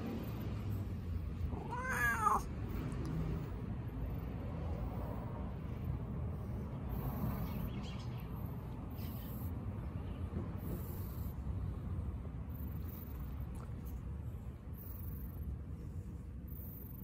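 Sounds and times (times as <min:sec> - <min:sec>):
cat meowing: 0:01.5 - 0:02.5.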